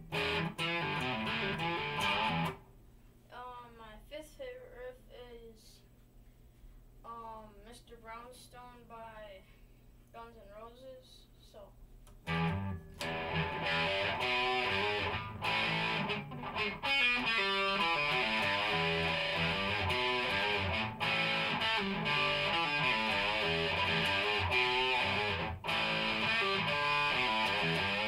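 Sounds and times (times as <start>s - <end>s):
electric guitar riff: 0.0s - 2.6s, 12.2s - 28.0s.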